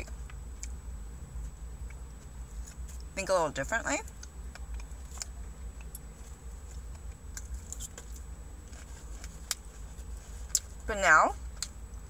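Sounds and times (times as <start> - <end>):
steady low hum: 0.0 - 12.0
person chewing food: 4.1 - 10.8.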